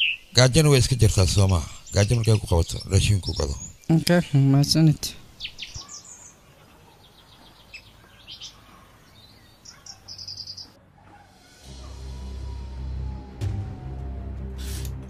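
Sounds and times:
birds chirping: 0.0 - 15.0
low sustained music: 10.3 - 15.0.

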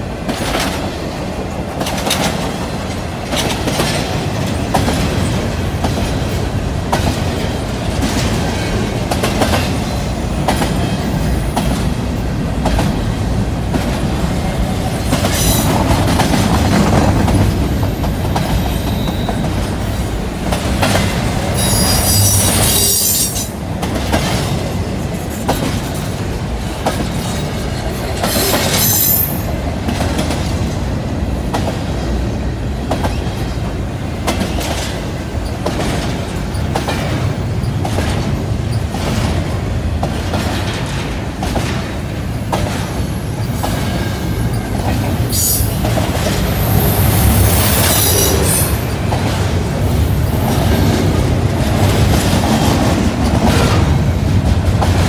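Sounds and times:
steel wheels rumbling on rail: 0.0 - 55.0
clicking over rail joints: 0.2 - 11.9, 32.8 - 43.0
high wheel squeals: 21.6 - 23.5.

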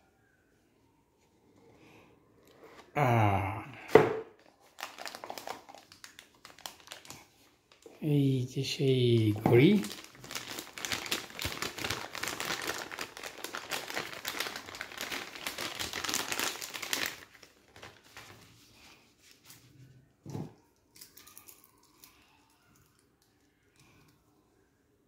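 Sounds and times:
plastic bag crinkling: 4.4 - 7.9, 8.8 - 18.6.

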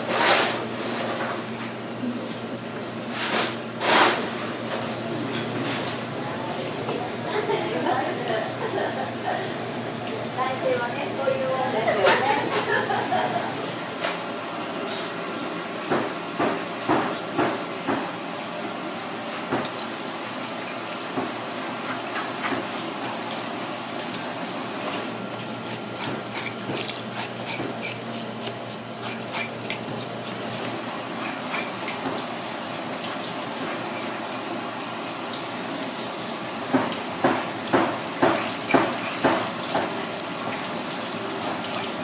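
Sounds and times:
hose water running: 20.3 - 42.0
metal scaler scraping fish: 25.6 - 34.1.

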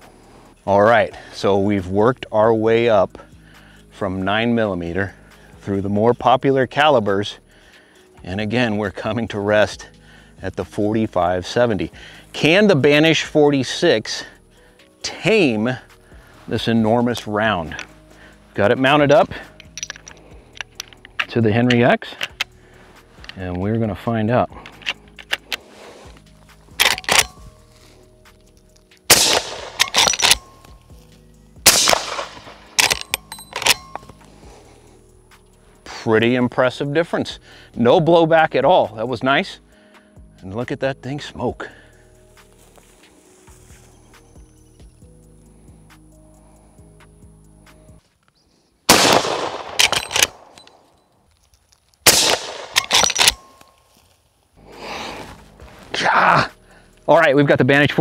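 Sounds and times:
rifle lever metallic clacks: 19.6 - 22.5, 24.6 - 25.6, 26.8 - 27.4, 29.1 - 30.7, 31.7 - 34.2, 49.2 - 50.9, 52.1 - 53.7
suppressed rifle shots: 26.8 - 27.4, 29.1 - 30.6, 31.6 - 34.0, 48.9 - 50.8, 52.0 - 53.5.

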